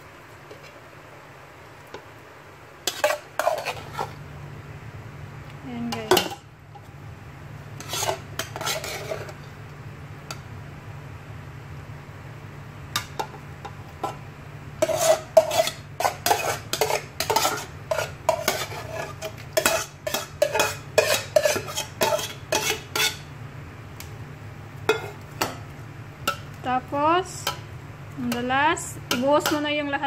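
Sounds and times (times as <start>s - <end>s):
metal spoon scraping pot: 2.9s - 4.2s, 7.8s - 9.4s, 14.8s - 23.3s.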